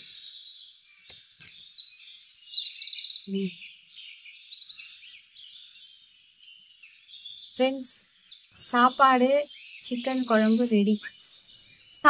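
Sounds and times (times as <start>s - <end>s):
birds chirping and trilling: 0.0s - 12.0s
short vocal sound: 3.3s - 3.5s.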